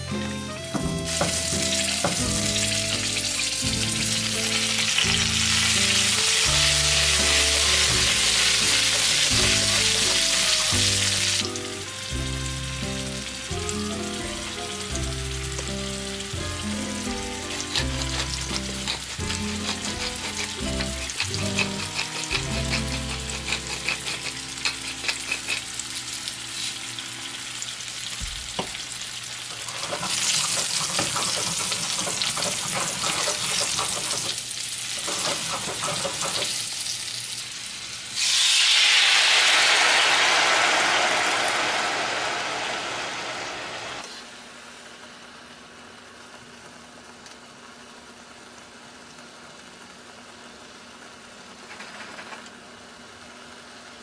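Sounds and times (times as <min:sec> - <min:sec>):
background music with bass: 0:00.0 - 0:23.8
potatoes sizzling in oil: 0:00.8 - 0:51.7.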